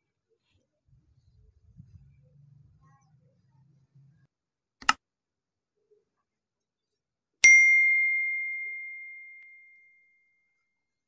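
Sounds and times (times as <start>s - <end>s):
bright bell ding: 7.4s - 10.2s.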